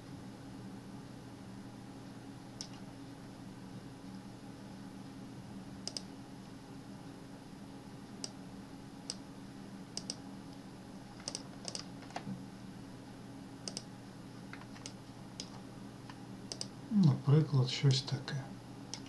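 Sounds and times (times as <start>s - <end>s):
faint hum: 0.0s - 19.0s
mouse and keyboard clicks: 5.8s - 6.1s, 11.2s - 12.2s, 13.6s - 13.9s, 16.5s - 16.7s.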